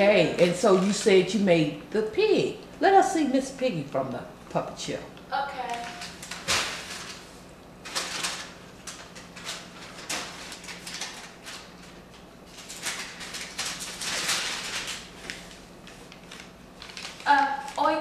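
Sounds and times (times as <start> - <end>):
paper rustling and scraping: 5.8 - 17.8.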